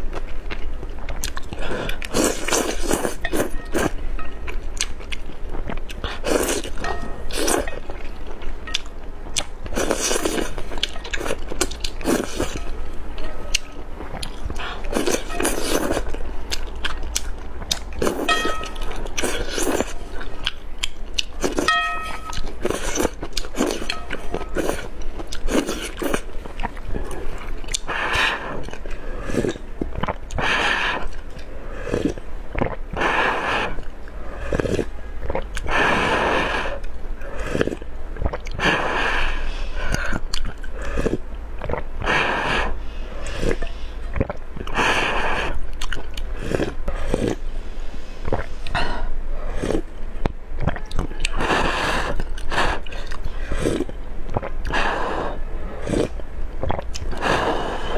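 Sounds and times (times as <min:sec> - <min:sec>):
chewing: 0:00.0 - 0:36.0, 0:36.6 - 0:38.7, 0:39.8 - 0:42.1, 0:43.2 - 0:47.5, 0:48.2 - 0:57.9
slurping noodles: 0:01.6 - 0:04.0, 0:06.0 - 0:07.7, 0:09.7 - 0:12.7, 0:14.6 - 0:16.2, 0:18.0 - 0:20.2, 0:22.6 - 0:26.3, 0:27.1 - 0:29.6, 0:34.4 - 0:34.9, 0:35.6 - 0:40.2, 0:40.8 - 0:45.6, 0:46.4 - 0:47.4, 0:48.3 - 0:49.9, 0:51.4 - 0:57.9.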